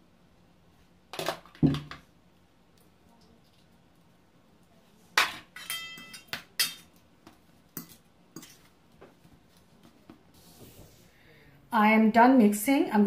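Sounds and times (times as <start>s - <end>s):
cutlery clinking against metal bowl: 5.2s - 7.0s, 7.7s - 8.7s.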